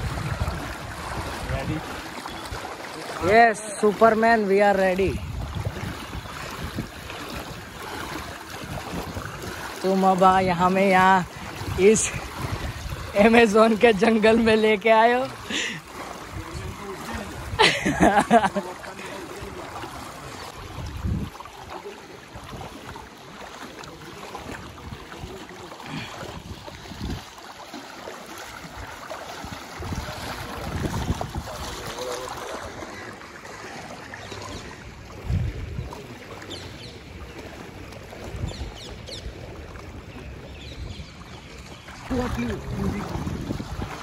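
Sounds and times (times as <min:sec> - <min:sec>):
wading through water: 0:00.0 - 0:44.0.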